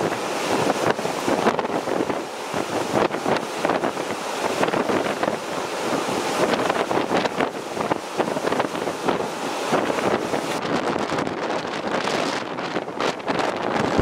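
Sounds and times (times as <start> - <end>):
gusty wind buffeting microphone: 0.0 - 14.0
wind-driven waves: 0.0 - 14.0.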